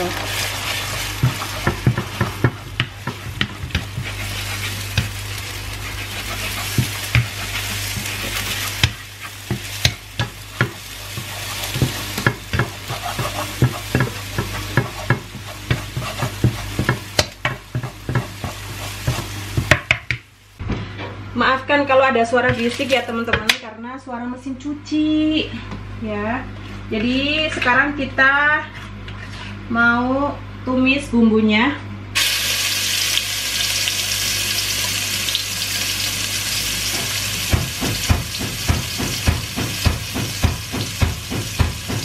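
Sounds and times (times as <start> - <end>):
spatula scraping pan: 0.0 - 19.8
eggs sizzling in oil: 0.0 - 20.6, 32.2 - 42.0
washing machine humming: 0.0 - 23.5, 32.2 - 42.0.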